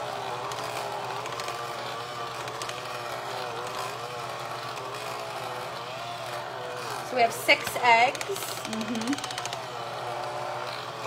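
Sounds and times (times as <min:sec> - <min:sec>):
electric hand mixer whining: 0:00.0 - 0:11.0.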